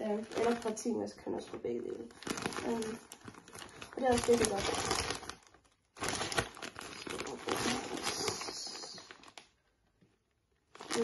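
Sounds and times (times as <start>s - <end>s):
plastic bag crinkling: 0.0s - 9.7s, 10.6s - 11.0s.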